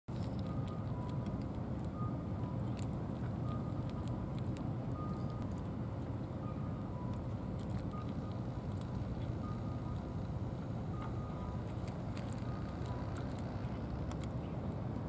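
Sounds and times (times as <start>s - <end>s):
cat crunching dry kibble: 0.1s - 4.7s, 7.1s - 10.1s, 11.0s - 14.4s
vehicle traffic rumble: 0.1s - 15.0s.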